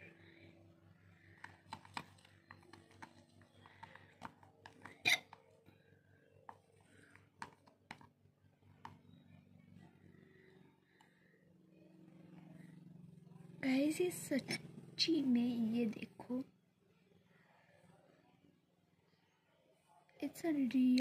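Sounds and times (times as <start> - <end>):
stick stirring slime: 1.4 - 5.2.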